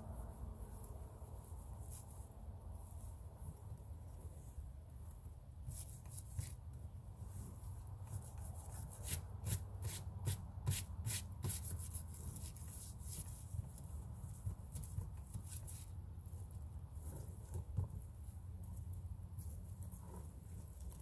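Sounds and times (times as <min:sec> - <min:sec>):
hand scrubbing a window: 0:00.0 - 0:21.0.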